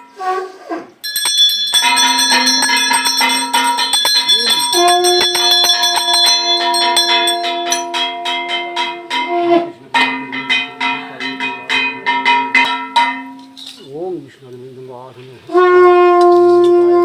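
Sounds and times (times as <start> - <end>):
hand bell rung rapidly: 1.0 - 9.2.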